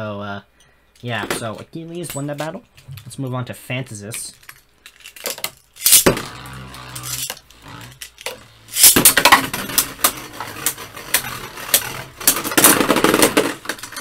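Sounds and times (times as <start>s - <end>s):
spinning tops clashing: 4.9s - 14.0s
ripcord launch: 5.8s - 10.0s.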